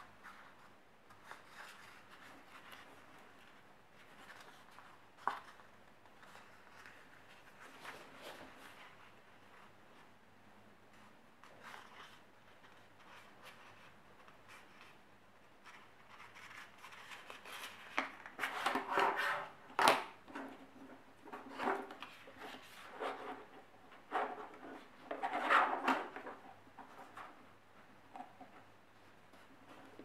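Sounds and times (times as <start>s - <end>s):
paper rustling against ruler: 15.6s - 19.5s.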